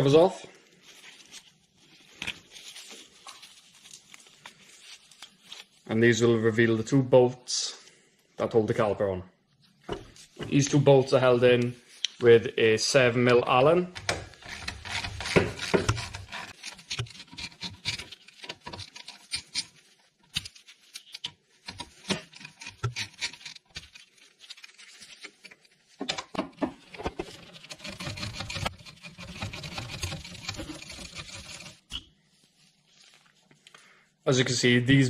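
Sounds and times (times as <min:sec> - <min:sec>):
metal tool clicking and scraping: 0:14.0 - 0:25.6.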